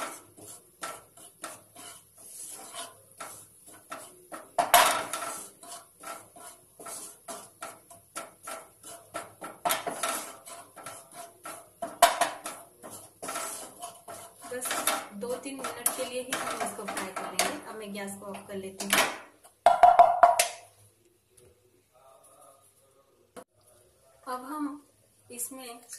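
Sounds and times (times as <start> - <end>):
spoon scraping frying pan: 0.0 - 20.7.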